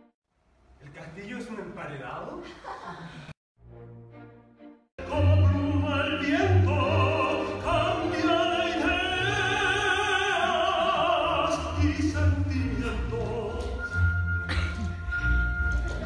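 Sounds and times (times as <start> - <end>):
operatic singing: 5.0 - 15.0.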